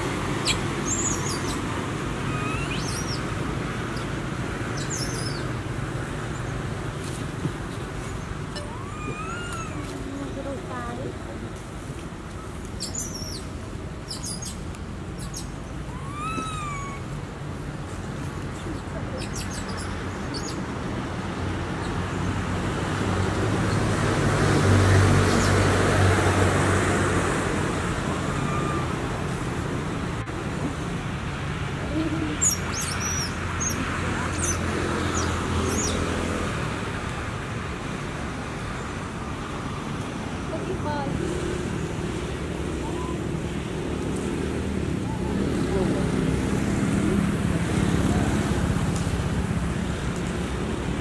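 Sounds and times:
road traffic rumble: 0.0 - 51.0
high animal chirps: 2.2 - 3.2, 8.5 - 9.9, 15.2 - 17.1
drawn-out animal call: 15.9 - 17.2, 28.0 - 29.3.

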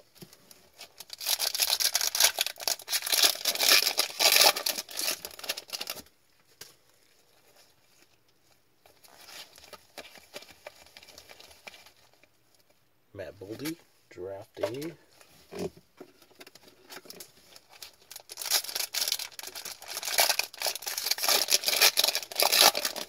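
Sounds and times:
wrapper crackling: 0.7 - 6.1, 16.9 - 23.0
cards rustling and ticking: 14.6 - 23.0.

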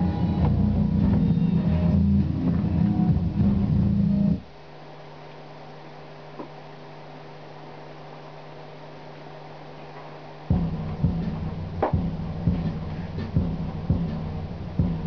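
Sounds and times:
bass-heavy music: 0.0 - 4.4, 10.5 - 15.0
low electrical hum: 0.0 - 15.0.

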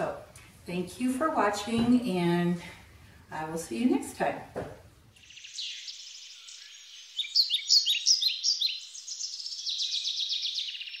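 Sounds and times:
songbird chirping and trilling: 5.2 - 11.0.

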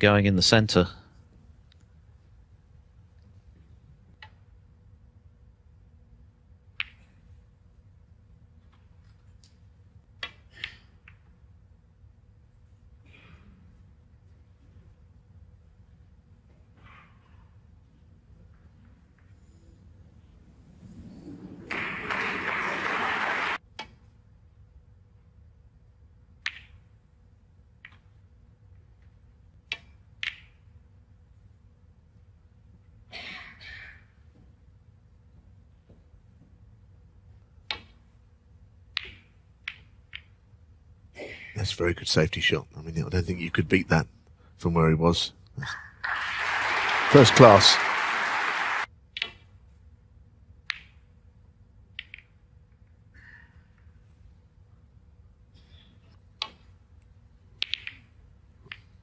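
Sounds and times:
snooker balls clicking: 6.7 - 7.2, 26.4 - 26.9, 27.7 - 28.2, 29.6 - 30.7, 37.6 - 38.1, 38.8 - 40.4, 50.6 - 51.2, 51.8 - 52.7, 56.3 - 59.0
faint arena hush: 18.8 - 23.6, 44.7 - 48.9
applause: 21.6 - 23.6, 46.0 - 48.9.

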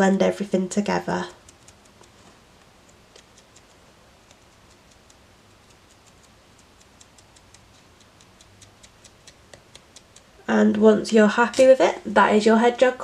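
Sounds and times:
felting needle jabbing wool: 1.3 - 10.8.

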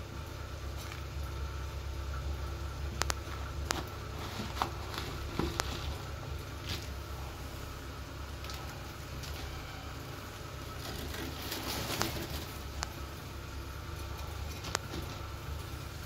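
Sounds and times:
steady low hum: 0.0 - 16.0
cat litter shifting: 3.3 - 7.5, 8.4 - 16.0
plastic bag rustling: 3.3 - 7.5, 10.6 - 13.2.

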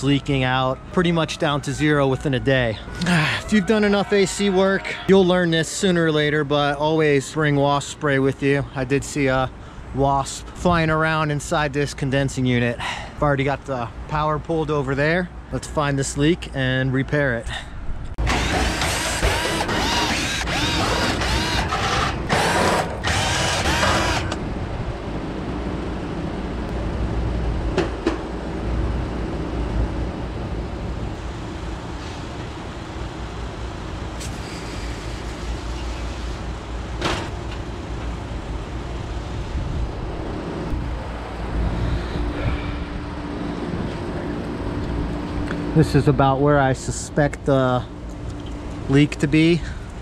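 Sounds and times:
steady background noise: 0.0 - 50.0
cordless drill motor revving: 18.2 - 24.4.

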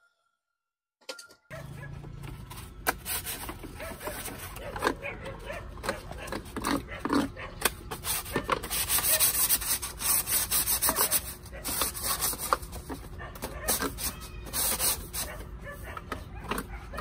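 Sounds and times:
sandpaper rasping on bamboo: 2.9 - 4.7, 7.9 - 13.0, 13.6 - 16.0.

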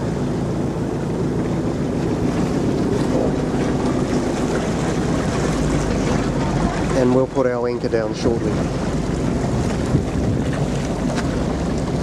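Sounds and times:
boat engine running: 0.0 - 12.0
wind noise on microphone: 8.0 - 12.0.

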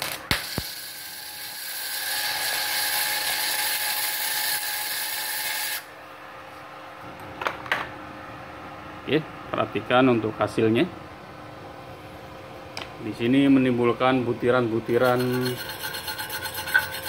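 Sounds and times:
welding arc crackling: 0.0 - 5.8.

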